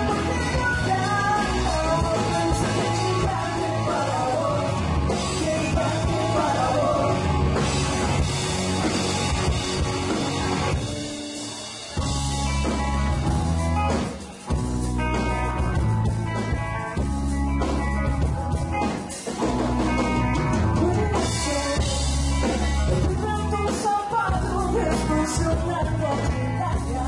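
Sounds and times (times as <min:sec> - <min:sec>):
woman singing: 0:00.0 - 0:07.2, 0:20.7 - 0:27.0
live rock band playing: 0:00.0 - 0:27.0.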